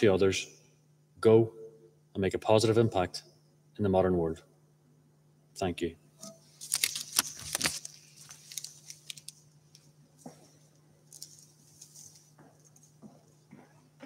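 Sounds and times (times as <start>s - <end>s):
paper being handled: 6.2s - 9.8s, 11.0s - 13.0s.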